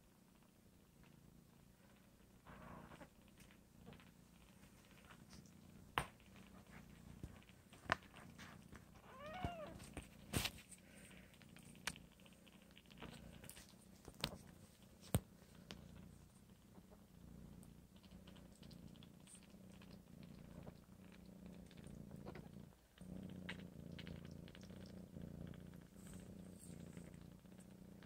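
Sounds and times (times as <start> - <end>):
cat purring: 0.0 - 28.0.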